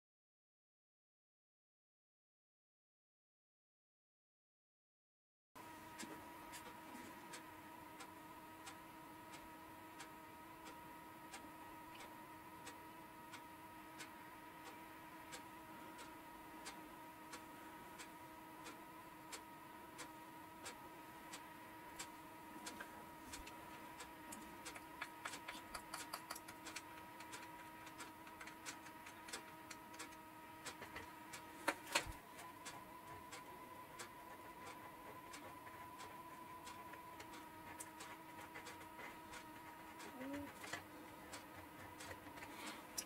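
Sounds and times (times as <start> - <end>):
faint steady hum: 5.6 - 43.0
small clicks and taps: 22.0 - 32.8.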